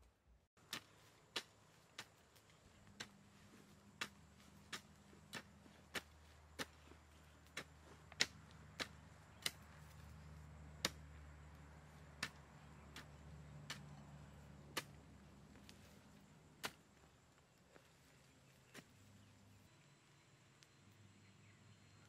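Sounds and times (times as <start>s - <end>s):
hoe chopping into soil: 0.6s - 17.1s.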